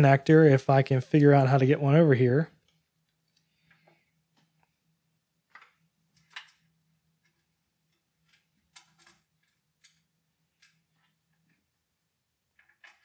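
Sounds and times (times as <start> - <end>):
cable clicks and rustles: 5.5 - 11.7, 12.5 - 13.0.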